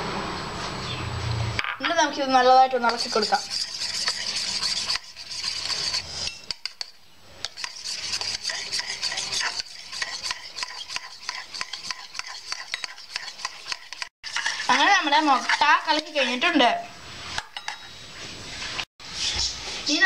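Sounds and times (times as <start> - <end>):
whisk clicking against steel bowl: 2.8 - 16.0.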